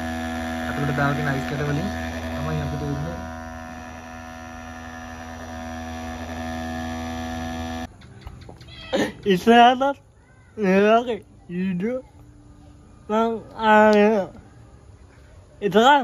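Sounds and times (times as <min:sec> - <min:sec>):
small electric fan motor humming: 0:00.0 - 0:08.0.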